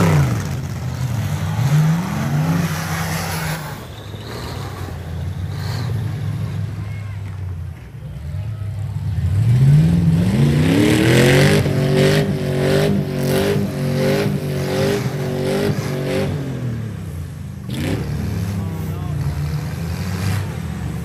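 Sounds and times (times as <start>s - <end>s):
pickup truck engine revving: 0.0s - 7.5s, 8.4s - 21.0s.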